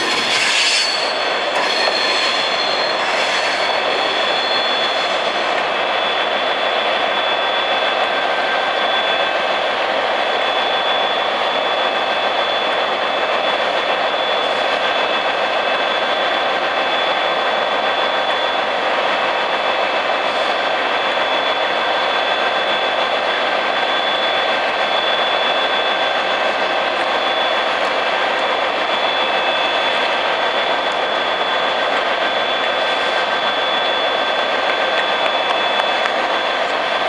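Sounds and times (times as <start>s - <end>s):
diesel locomotive engines idling: 0.0s - 37.0s
high-pitched whine: 0.0s - 37.0s.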